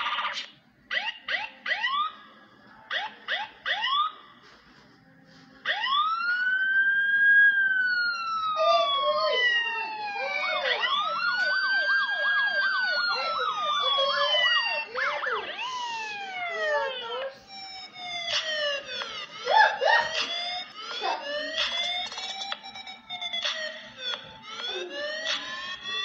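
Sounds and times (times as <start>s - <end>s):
siren yelp: 0.0s - 2.2s, 2.9s - 4.2s, 5.6s - 26.0s
siren warble: 5.7s - 26.0s
toy siren wailing: 6.8s - 23.8s, 24.4s - 26.0s.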